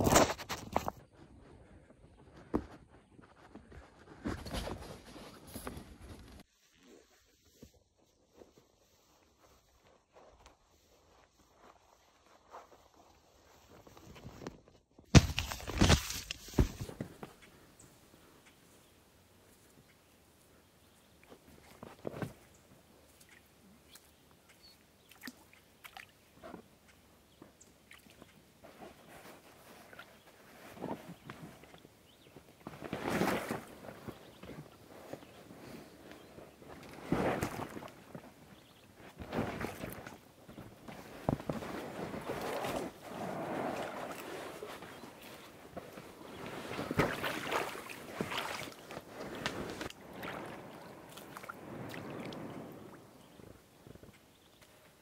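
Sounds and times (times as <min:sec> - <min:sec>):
bare feet splashing in shallow water: 0:23.0 - 0:26.4, 0:42.1 - 0:53.3
paddle splashes and drips: 0:25.0 - 0:26.2, 0:46.7 - 0:52.4.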